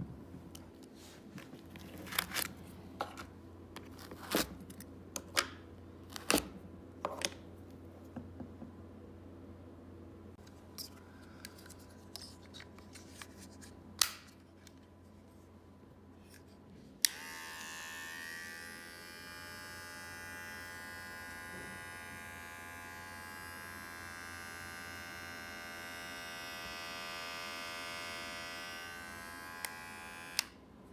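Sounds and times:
electric hair clipper buzzing: 0:17.0 - 0:30.6.

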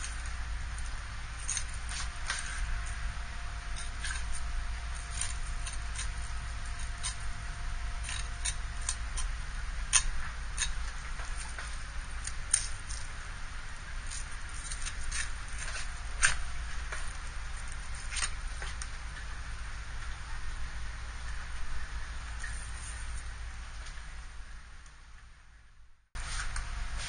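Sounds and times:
knife cutting fish bones: 0:00.0 - 0:03.0, 0:03.7 - 0:13.1, 0:14.0 - 0:18.9
steady low hum: 0:00.0 - 0:27.0.

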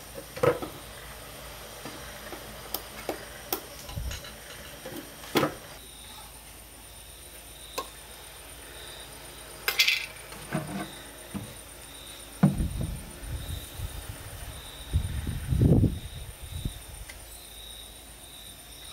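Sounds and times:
metal tins clinking on concrete: 0:09.7 - 0:10.9
dull knocks: 0:12.4 - 0:13.0.

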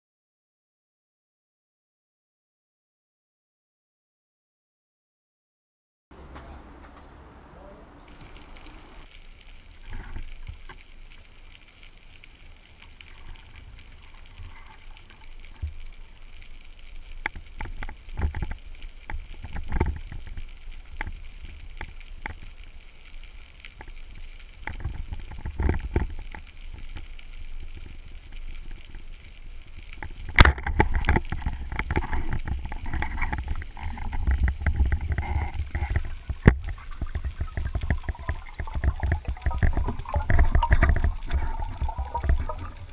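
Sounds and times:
muffled underwater rumble: 0:07.7 - 0:42.9
sharp clicks and knocks: 0:29.9 - 0:42.9.

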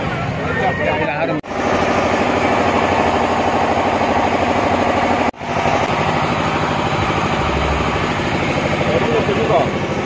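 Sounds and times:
loud pulsing engine running: 0:01.4 - 0:10.0.

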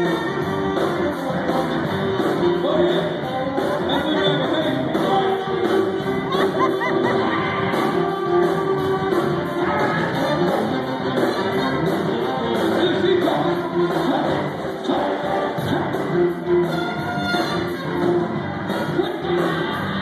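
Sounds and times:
live blues band playing: 0:00.0 - 0:20.0
man singing: 0:02.2 - 0:08.4, 0:09.5 - 0:17.0, 0:18.7 - 0:20.0.

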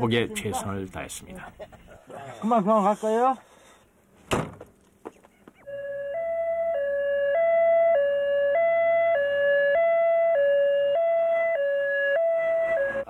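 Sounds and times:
two-tone ambulance siren: 0:05.6 - 0:13.0.

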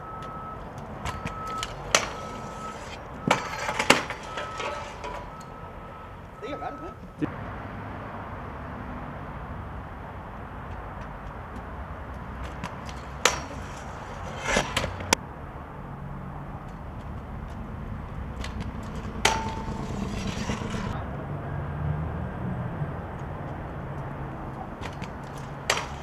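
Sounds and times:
scooter wheels rolling on concrete: 0:00.0 - 0:07.3, 0:09.6 - 0:15.2, 0:16.4 - 0:21.0, 0:23.2 - 0:26.0
scooter clacking on pavement: 0:00.2 - 0:05.6, 0:10.5 - 0:15.2, 0:16.7 - 0:21.0, 0:24.5 - 0:26.0.

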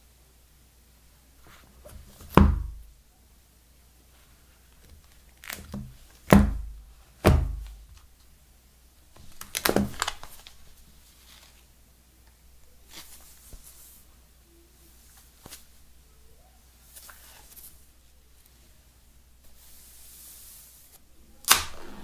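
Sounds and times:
faint plastic rustling: 0:04.0 - 0:08.3, 0:09.0 - 0:21.0
knocks and taps on boxes: 0:07.2 - 0:07.7.

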